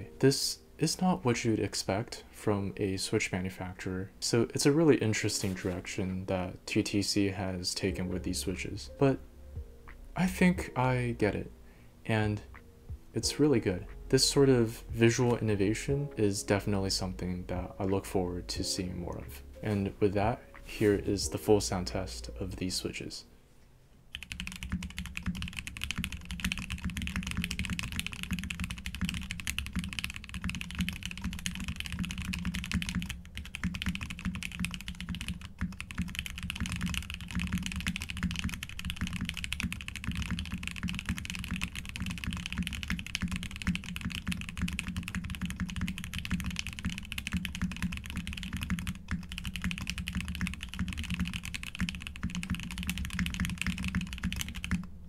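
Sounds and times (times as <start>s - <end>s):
mechanical keyboard typing: 24.1s - 54.9s.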